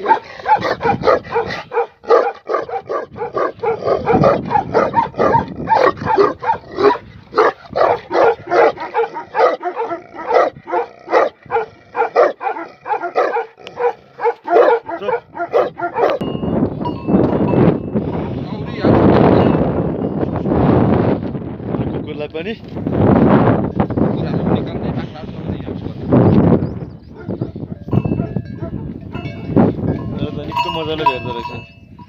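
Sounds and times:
dog barking: 0:00.0 - 0:16.2, 0:27.1 - 0:28.9.

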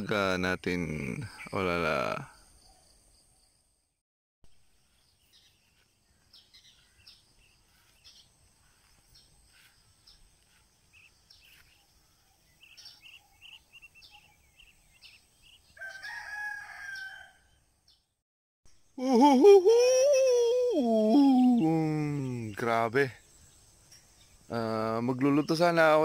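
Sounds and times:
faint bird chirping: 0:00.1 - 0:26.0
rooster crowing: 0:15.8 - 0:17.6.

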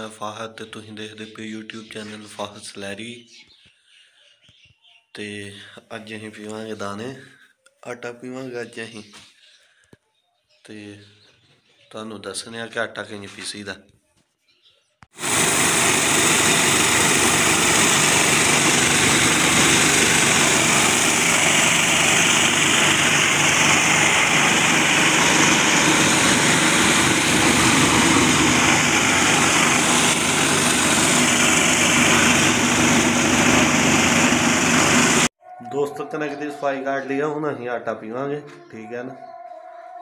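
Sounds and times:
tractor engine running under load: 0:15.2 - 0:35.3
stone flour mill grinding: 0:15.3 - 0:35.3.

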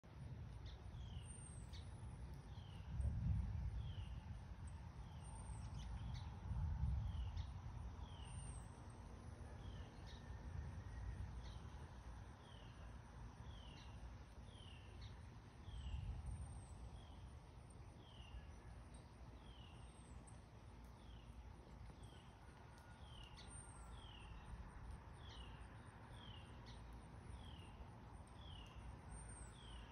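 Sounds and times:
wind gusting over microphone: 0:01.9 - 0:08.1, 0:15.6 - 0:16.9.

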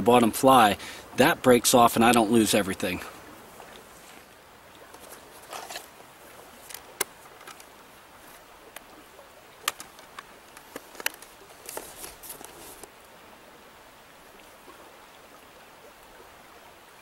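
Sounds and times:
shallow stream rushing: 0:00.0 - 0:17.0
clothing rustling: 0:05.0 - 0:05.9, 0:10.6 - 0:12.9
sharp clicks of fishing gear: 0:06.6 - 0:07.7, 0:09.6 - 0:12.9.

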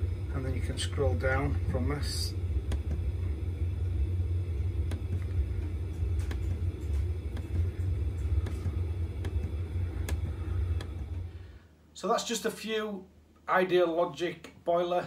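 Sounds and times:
boiler burner and fan rumbling: 0:00.0 - 0:12.2.

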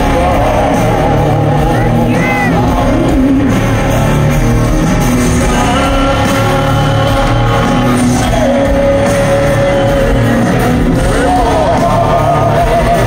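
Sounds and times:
live rock band playing: 0:00.0 - 0:13.0.

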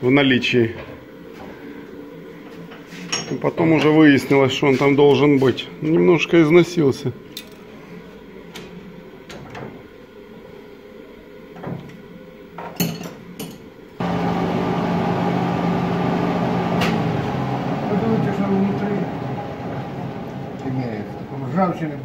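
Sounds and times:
metal lathe running: 0:14.0 - 0:22.0.

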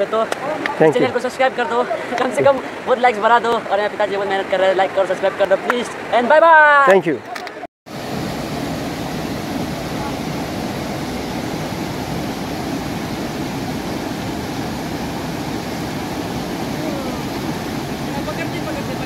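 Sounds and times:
river rushing over rocks: 0:07.9 - 0:19.0.

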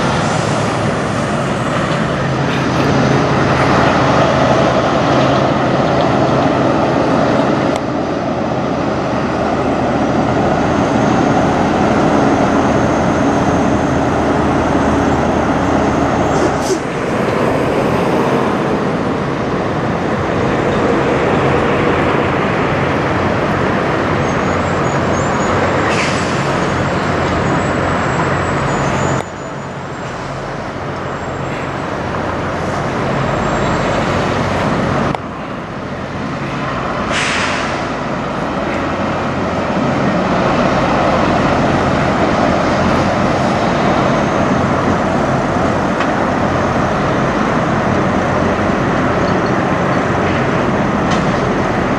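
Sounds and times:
truck diesel engine running: 0:00.0 - 0:51.9
air brakes hissing: 0:16.2 - 0:17.0, 0:25.2 - 0:26.8, 0:37.1 - 0:37.9.

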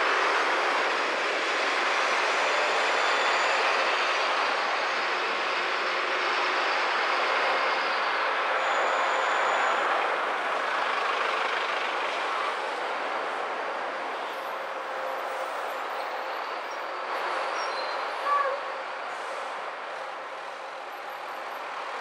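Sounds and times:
road and engine noise: 0:00.0 - 0:22.0
brief high squeal: 0:17.5 - 0:18.7.

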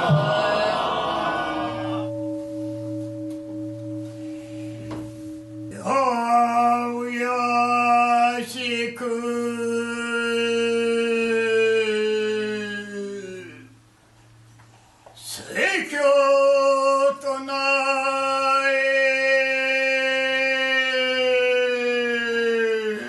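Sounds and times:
man chanting a long note: 0:00.0 - 0:02.2, 0:04.1 - 0:13.8, 0:15.4 - 0:23.0
bowl bell ringing: 0:00.1 - 0:08.2.

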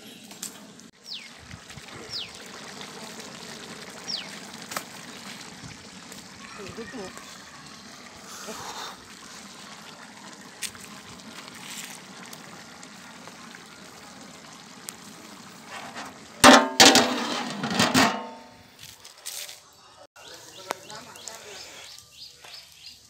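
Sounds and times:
metal lid clanging on pot: 0:16.4 - 0:18.5.

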